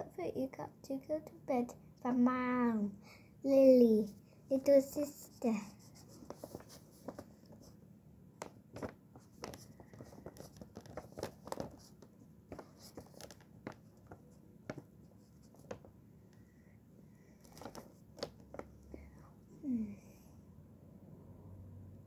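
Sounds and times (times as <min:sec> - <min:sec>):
paper rustling and scratching: 0:05.0 - 0:07.8, 0:08.7 - 0:15.9, 0:17.4 - 0:18.8.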